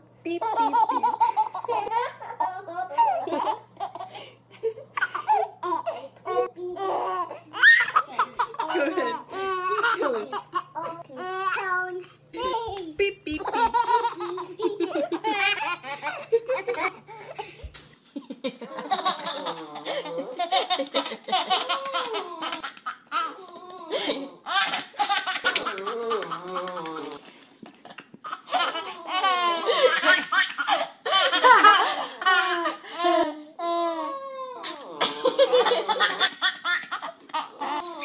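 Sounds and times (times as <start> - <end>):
baby laughing: 0.3 - 4.3, 4.9 - 12.8, 13.4 - 17.7, 18.6 - 27.2, 27.9 - 38.0.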